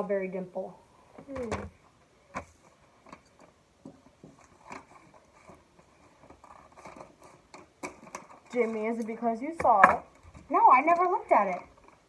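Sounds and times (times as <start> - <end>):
small crackles: 1.1 - 12.0
package rustling and clicking: 4.3 - 9.2.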